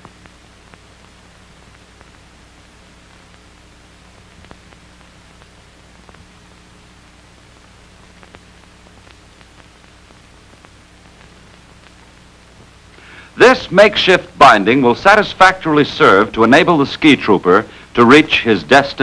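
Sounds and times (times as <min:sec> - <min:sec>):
film soundtrack hiss and hum: 0:00.0 - 0:19.0
faint clicks: 0:04.2 - 0:06.3, 0:08.0 - 0:13.0.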